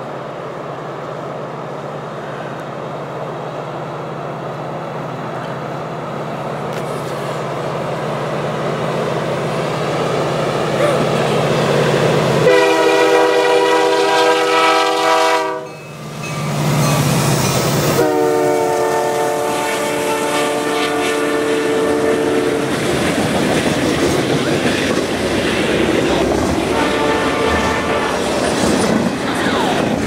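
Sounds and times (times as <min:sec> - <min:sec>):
train cars rumbling on rails: 0:00.0 - 0:30.0
locomotive air horn blasts: 0:12.4 - 0:15.8, 0:18.0 - 0:22.6, 0:26.7 - 0:28.2.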